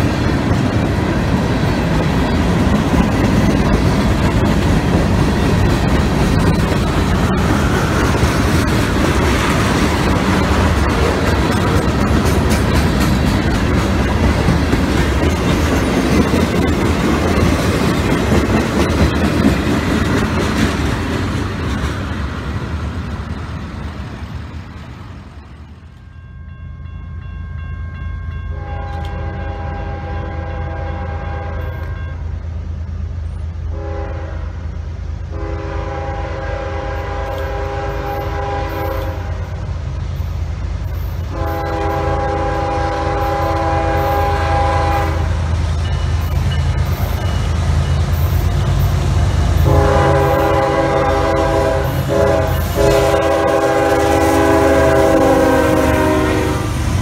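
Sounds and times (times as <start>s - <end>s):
locomotive horn blasts: 28.5s - 32.2s, 33.7s - 34.6s, 35.3s - 39.5s, 41.3s - 45.4s, 49.6s - 56.8s.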